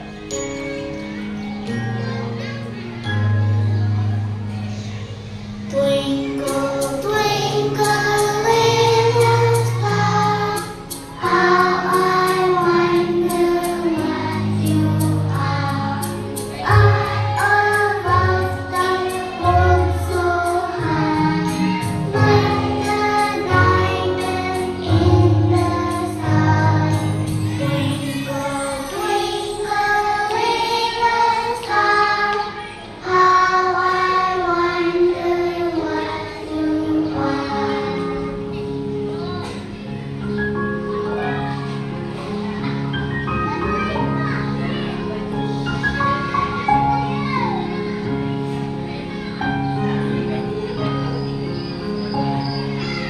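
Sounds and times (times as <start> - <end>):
children singing in unison: 5.6 - 39.6.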